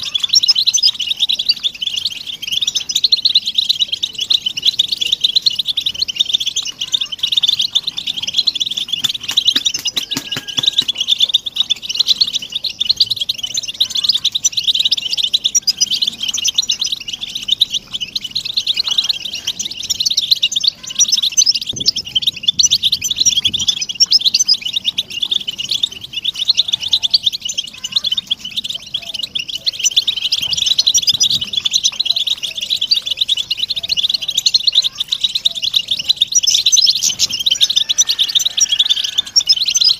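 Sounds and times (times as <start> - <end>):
flock of finches chattering: 0.0 - 39.9.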